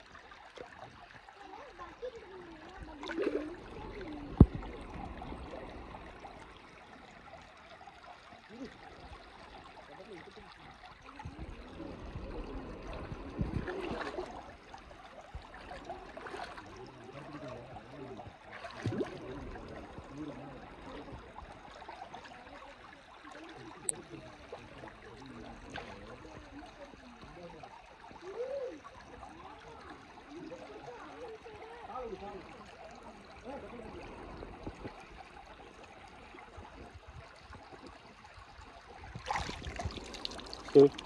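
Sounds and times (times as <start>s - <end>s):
canal water flowing: 0.0s - 41.0s
short knocks or splashes: 18.5s - 19.3s, 39.1s - 41.0s.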